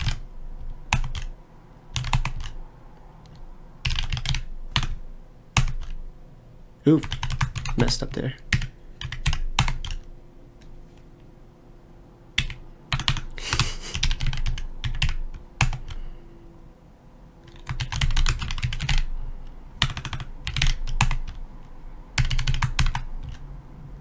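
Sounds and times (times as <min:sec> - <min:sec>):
computer keyboard typing: 0:00.0 - 0:02.6, 0:03.2 - 0:06.0, 0:07.0 - 0:10.7, 0:12.4 - 0:16.0, 0:17.4 - 0:23.5.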